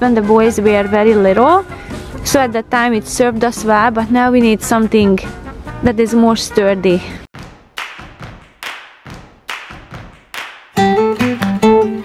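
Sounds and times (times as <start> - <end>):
acoustic guitar strumming: 10.8 - 12.0.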